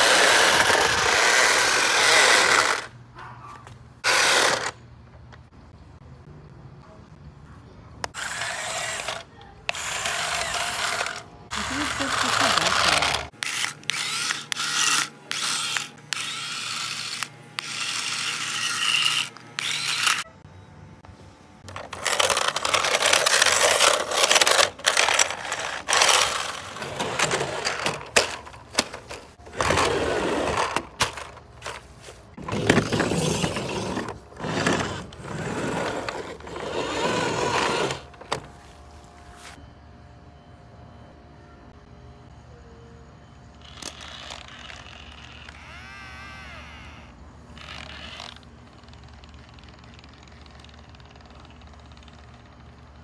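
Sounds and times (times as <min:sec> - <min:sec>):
toy car motors whirring: 0:00.0 - 0:02.9, 0:04.0 - 0:04.8, 0:08.0 - 0:20.4, 0:21.6 - 0:38.5, 0:43.6 - 0:53.0.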